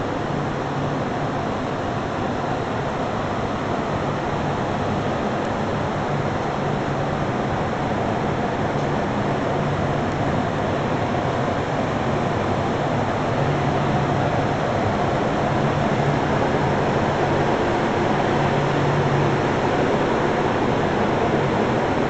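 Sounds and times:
rushing air with low hum: 0.0 - 22.0.

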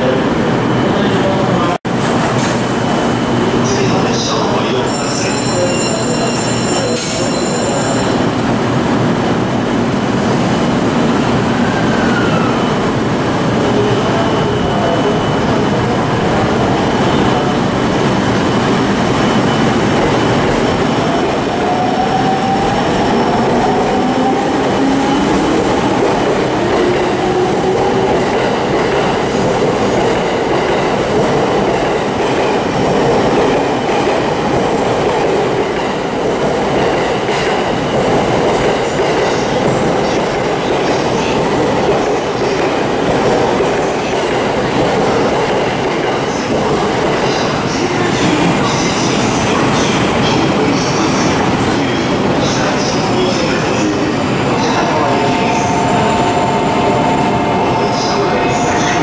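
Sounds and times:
electric train rumbling past: 0.0 - 59.0.

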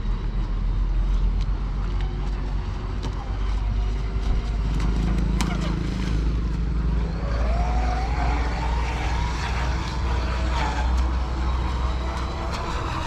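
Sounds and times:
electric motor whining: 7.0 - 13.0.

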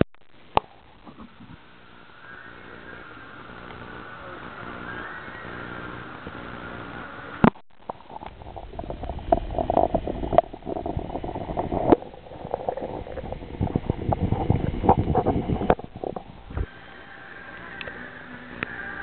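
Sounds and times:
water sloshing and gurgling: 7.4 - 16.7.

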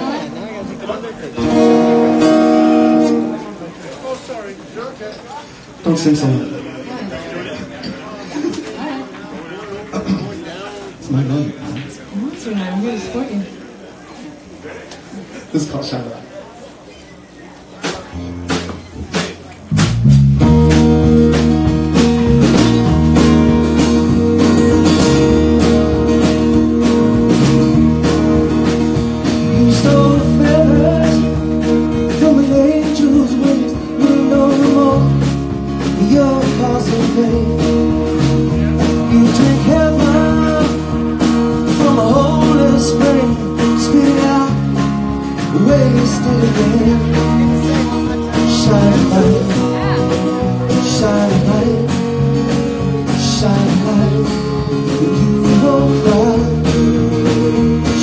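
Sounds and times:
strummed acoustic guitar: 0.0 - 4.5, 17.8 - 58.0
drums: 0.0 - 4.8, 5.4 - 58.0
bass: 17.8 - 58.0
man singing: 29.2 - 58.0.

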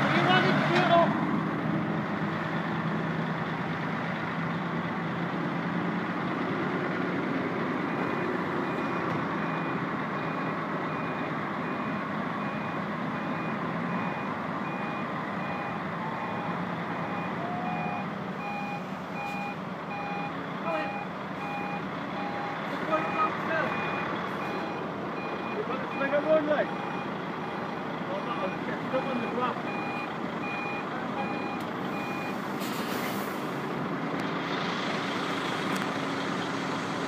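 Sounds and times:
truck diesel engine running: 0.0 - 37.0
reversing alarm beeping: 8.6 - 32.4.

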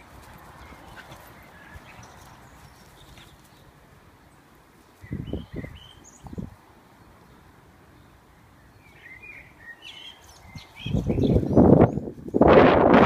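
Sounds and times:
puppies play-fighting: 0.0 - 3.8
birds chirping faintly: 0.0 - 12.5.

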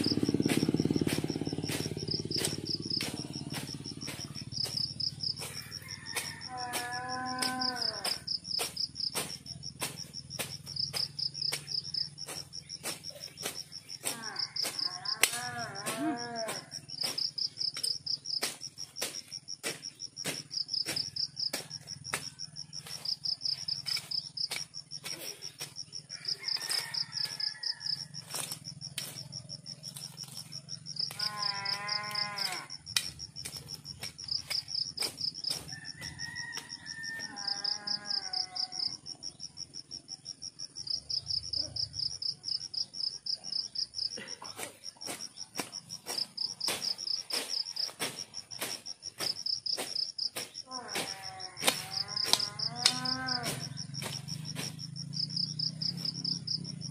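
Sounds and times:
sharp ticks: 0.0 - 15.6, 16.5 - 26.6, 27.2 - 36.8, 51.6 - 56.8
insects trilling: 0.0 - 56.9
farm animal calling: 31.0 - 32.8, 36.6 - 39.0, 50.7 - 53.7.

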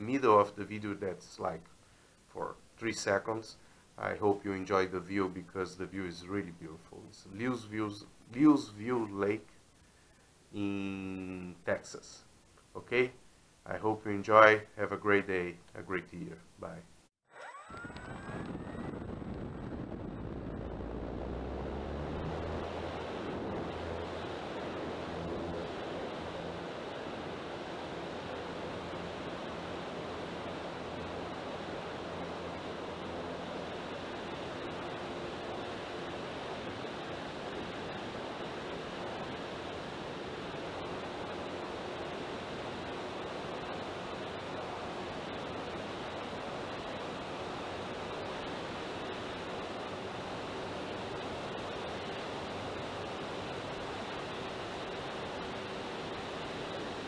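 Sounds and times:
electric motor and propeller hum: 17.3 - 57.0
wind rushing over microphone: 17.7 - 46.6.

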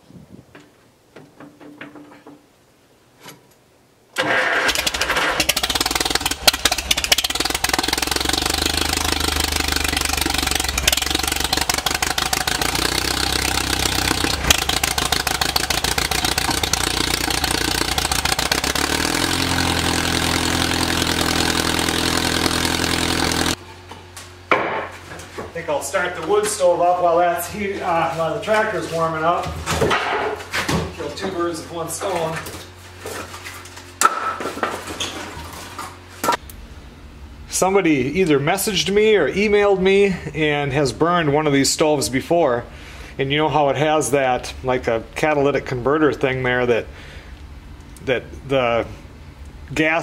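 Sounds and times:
tractor engine starting and running: 4.2 - 23.8.

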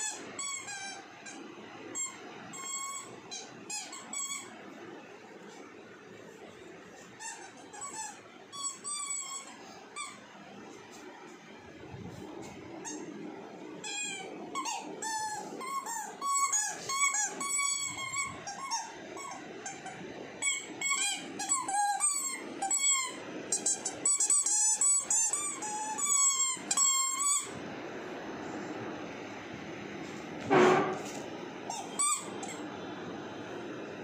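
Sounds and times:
rubber toy squeaking: 0.0 - 1.4, 2.0 - 4.5, 7.2 - 10.2, 13.8 - 27.5, 31.7 - 32.6.

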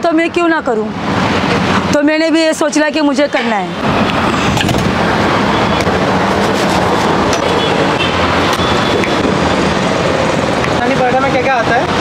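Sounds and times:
roadside traffic rumble: 0.0 - 12.0.

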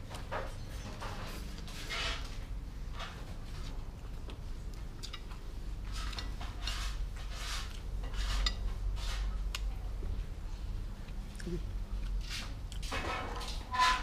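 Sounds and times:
chopsticks scraping on plate: 0.8 - 3.7, 5.0 - 9.7, 12.0 - 14.0.

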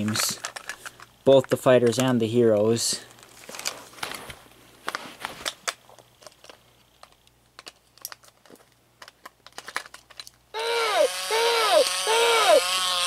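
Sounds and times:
plastic toys clicking and tapping: 0.0 - 2.2, 5.7 - 10.4.

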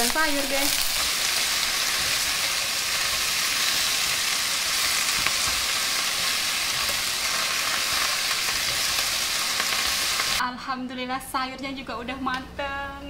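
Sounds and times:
greens sizzling in a wok: 0.0 - 10.4
spatula clicking and scraping: 0.9 - 9.8.

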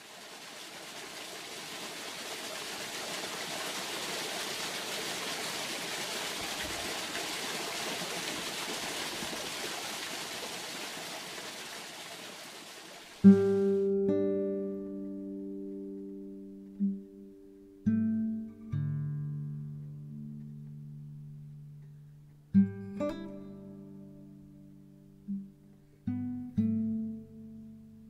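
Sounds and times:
running water: 0.0 - 13.9
acoustic guitar music: 13.2 - 28.0.

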